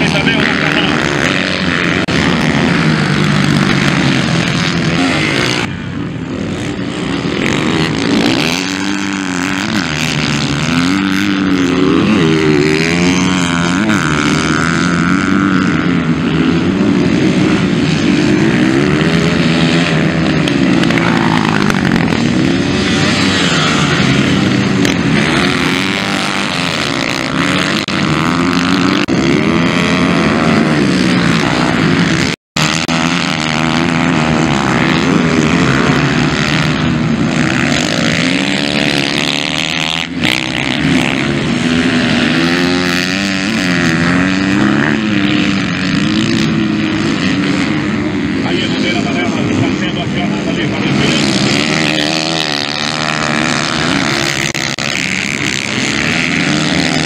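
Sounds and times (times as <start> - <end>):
motocross engines revving: 0.0 - 57.0.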